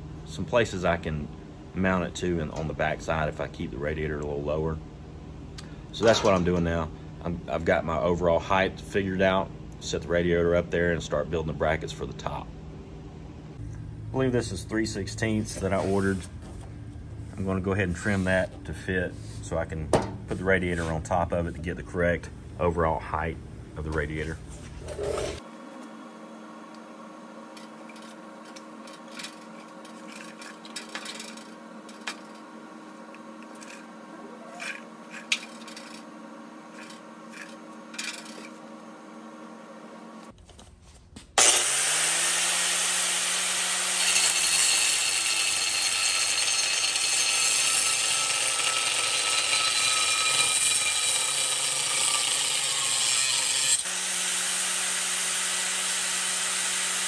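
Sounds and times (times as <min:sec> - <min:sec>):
steady background hum: 0:00.0 - 0:54.1
angle grinder cutting steel: 0:26.7 - 0:40.3, 0:41.4 - 0:57.0.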